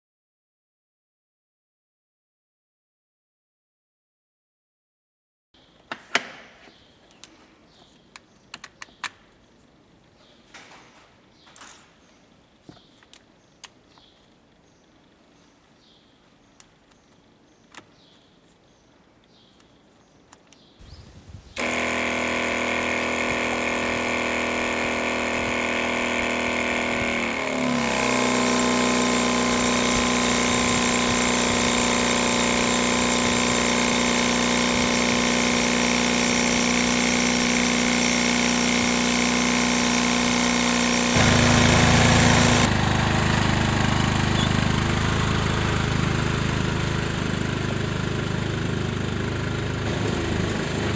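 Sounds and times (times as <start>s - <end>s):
atv engine running: 21.6s - 50.9s
electric pump running: 21.6s - 50.9s.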